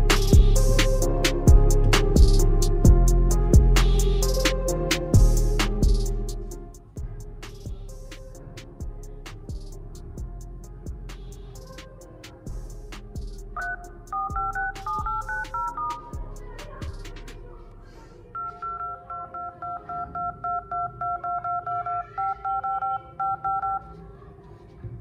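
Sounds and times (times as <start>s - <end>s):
phone dial-pad key beeps: 13.6s - 16.1s, 18.4s - 23.9s.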